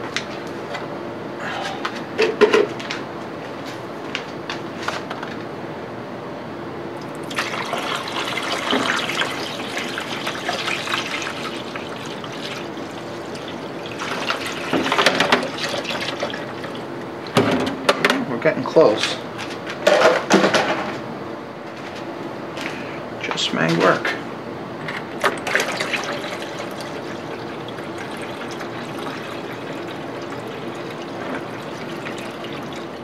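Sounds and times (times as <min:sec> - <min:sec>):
liquid splashing into plastic can: 0:07.0 - 0:17.4, 0:25.2 - 0:33.0.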